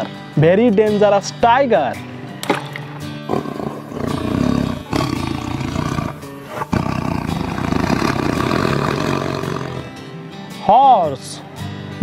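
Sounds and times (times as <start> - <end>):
background music: 0.0 - 12.0
tiger roaring: 3.2 - 9.9.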